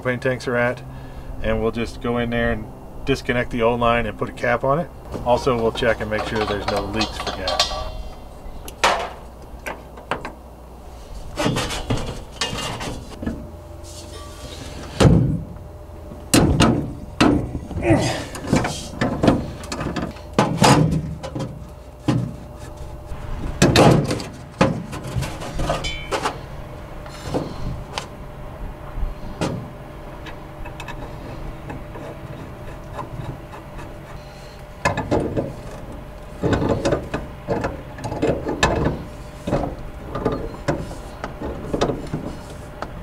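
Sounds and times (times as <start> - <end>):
metallic clicks and scraping: 5.2 - 10.1.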